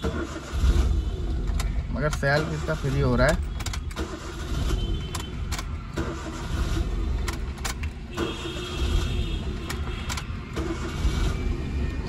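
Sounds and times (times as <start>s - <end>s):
starter motor whirring: 0.0s - 11.9s
car engine rumble: 0.0s - 12.0s
sharp clicks: 1.5s - 4.2s, 5.0s - 6.4s, 7.2s - 10.8s.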